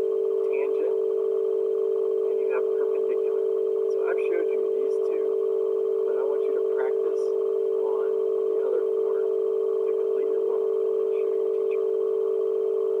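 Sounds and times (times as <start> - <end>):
steady electronic tone: 0.0 - 13.0.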